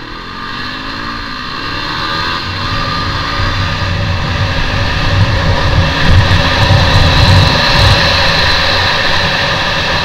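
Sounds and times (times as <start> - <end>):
motorcycle engine under load: 0.0 - 10.0
wind rumble on microphone: 2.0 - 10.0.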